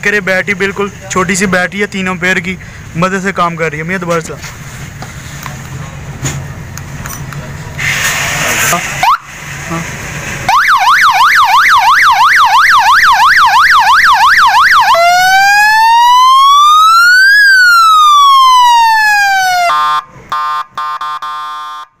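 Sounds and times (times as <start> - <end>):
siren wail: 10.5 - 22.0
siren yelp: 10.5 - 22.0
horn tone blasts: 19.7 - 22.0.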